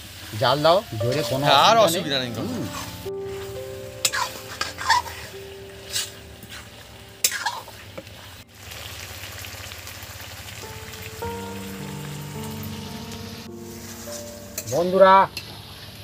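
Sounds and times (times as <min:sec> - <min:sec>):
food sizzling in pan: 0:00.0 - 0:16.0
metal spatula scraping pan: 0:04.0 - 0:07.7.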